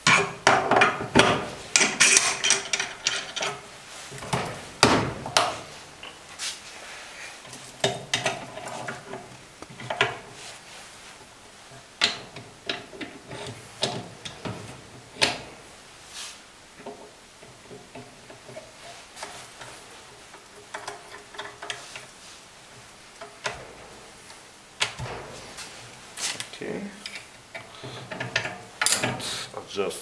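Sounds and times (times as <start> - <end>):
steel parts clinking and knocking: 0.0 - 6.2, 23.2 - 29.4.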